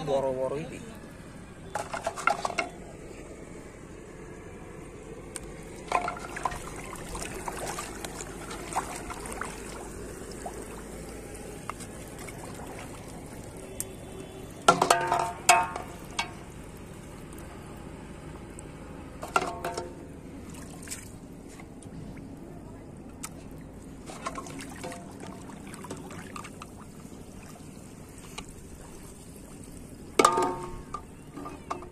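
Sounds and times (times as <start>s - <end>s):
water trickling and sloshing: 5.3s - 31.9s
bottles knocking on metal basin: 14.7s - 16.4s, 19.2s - 20.0s, 30.2s - 31.9s.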